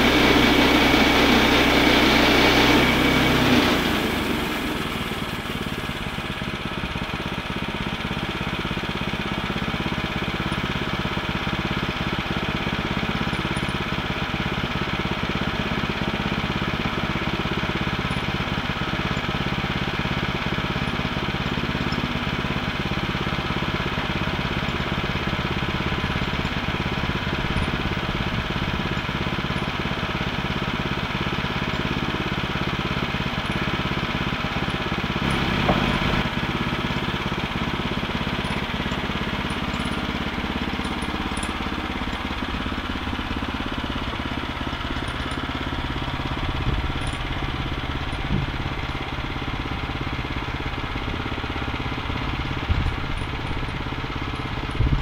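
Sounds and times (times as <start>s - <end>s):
gasoline engine running: 0.0s - 55.0s.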